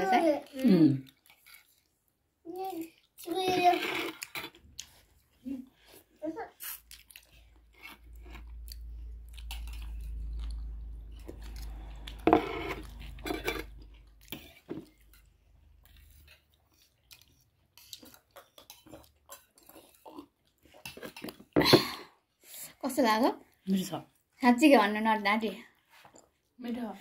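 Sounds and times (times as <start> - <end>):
chewing and biting: 2.8 - 21.6.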